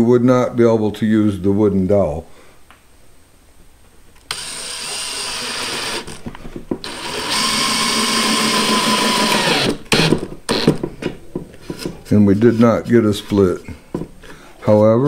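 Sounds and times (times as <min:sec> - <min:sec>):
cordless drill driving screw: 0:04.2 - 0:06.2, 0:06.8 - 0:10.8
short drill trigger bursts: 0:04.3 - 0:06.1, 0:06.8 - 0:10.7.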